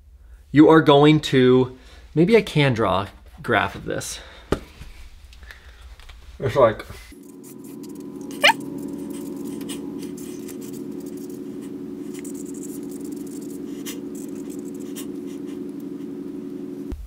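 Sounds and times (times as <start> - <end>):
steady low hum: 4.1 - 17.0
pen scratching on paper: 7.2 - 16.1.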